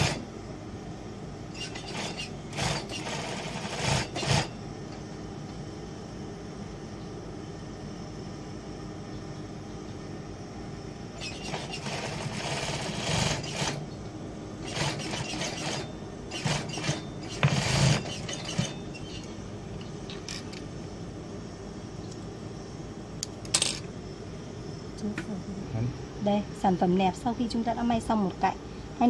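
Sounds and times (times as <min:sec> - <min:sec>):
sewing machine stitching: 0:00.0 - 0:00.2, 0:01.6 - 0:04.5, 0:11.2 - 0:13.8, 0:14.6 - 0:19.3
steady motor hum: 0:00.0 - 0:29.0.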